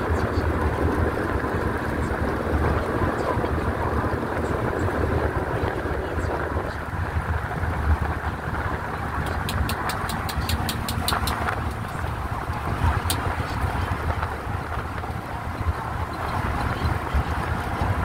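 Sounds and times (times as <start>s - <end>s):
vehicle engine and tyre rumble: 0.0s - 18.0s
sharp clicks: 9.2s - 12.1s.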